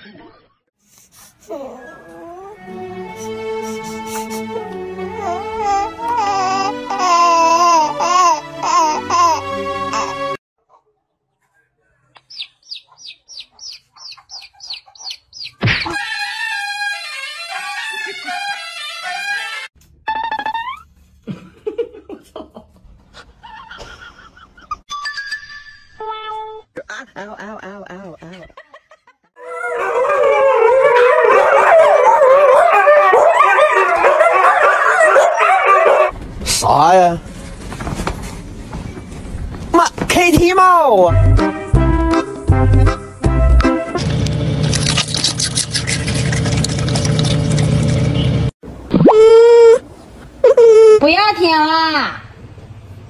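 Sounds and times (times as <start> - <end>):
music: 2.2 - 10.4, 41.0 - 44.3
chick peeping: 12.2 - 15.6
dogs howling: 29.4 - 36.1.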